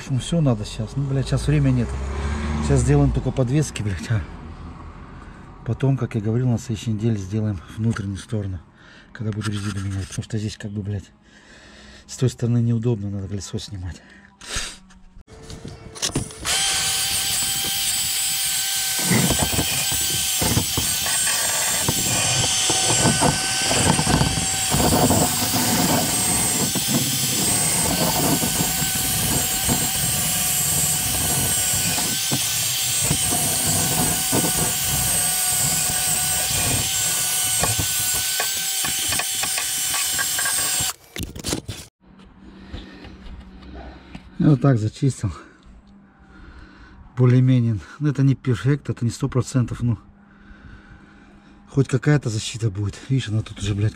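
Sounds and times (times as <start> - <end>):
drill motor whine: 15.5 - 41.0
wire brush scraping metal: 18.1 - 38.5.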